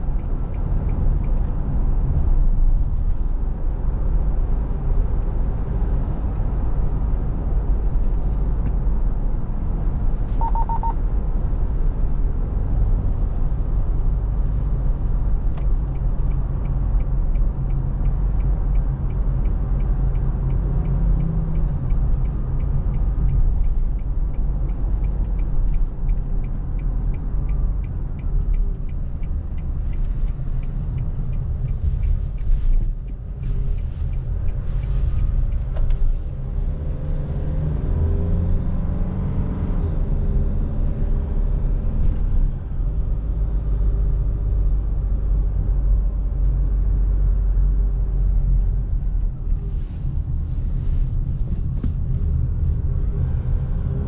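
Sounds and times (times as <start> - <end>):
turn signal ticking: 0.0 - 8.9, 9.6 - 12.4, 13.4 - 38.7
road rumble: 0.0 - 54.0
short beep: 10.4 - 11.0.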